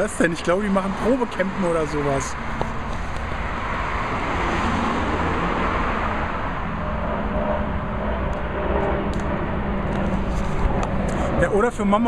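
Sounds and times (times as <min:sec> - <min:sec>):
car engine rumble: 0:00.0 - 0:12.0.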